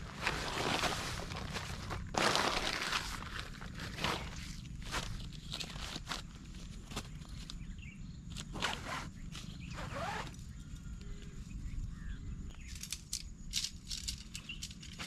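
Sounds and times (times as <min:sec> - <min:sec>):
tent fabric rustling: 0:00.0 - 0:07.6, 0:08.3 - 0:10.4.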